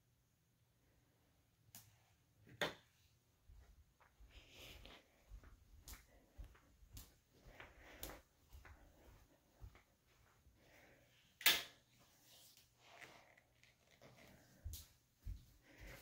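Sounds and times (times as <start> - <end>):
footsteps on carpet: 3.4 - 10.9, 14.0 - 16.0.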